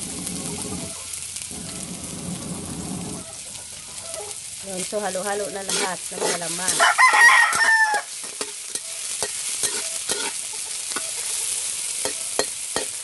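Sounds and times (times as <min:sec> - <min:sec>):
food sizzling in hot oil: 0:00.0 - 0:13.0
spatula scraping wok: 0:04.0 - 0:13.0.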